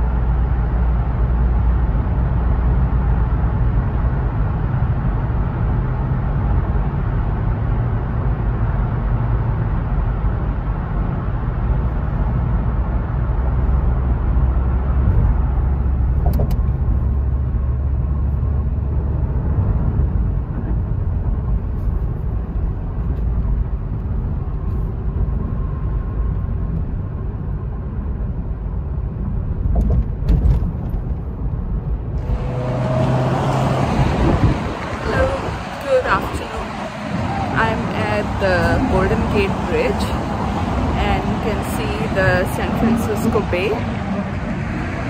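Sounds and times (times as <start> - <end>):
car cabin road rumble: 0.0 - 45.0
passing traffic: 0.0 - 45.0
wind on microphone: 32.1 - 45.0.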